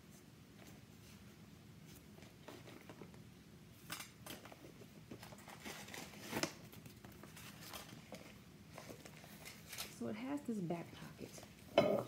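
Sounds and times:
tissue paper rustling and crinkling: 5.1 - 10.0.

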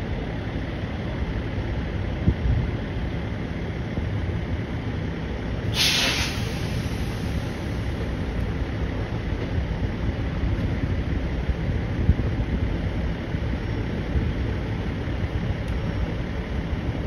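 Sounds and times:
truck diesel engine running: 0.0 - 17.0
air brakes hissing: 5.6 - 8.3.

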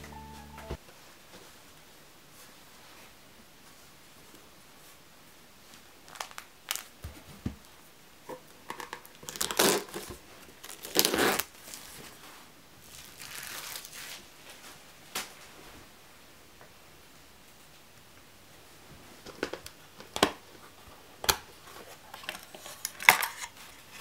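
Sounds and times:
plastic film ripping and crinkling: 9.3 - 12.0, 12.8 - 14.6.

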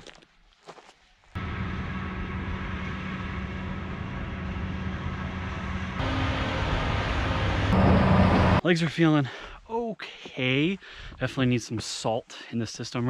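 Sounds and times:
locomotive engine drone: 1.4 - 8.6.

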